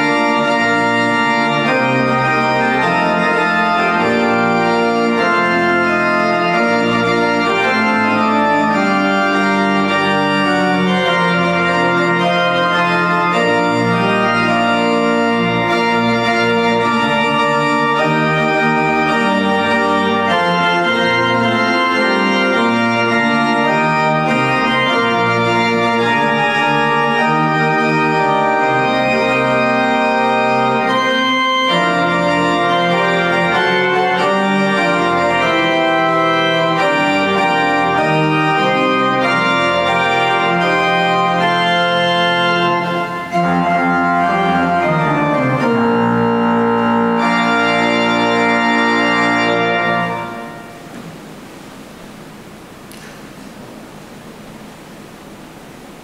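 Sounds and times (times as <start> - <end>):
church organ chords: 0.0 - 56.0
faint hiss: 50.4 - 56.0.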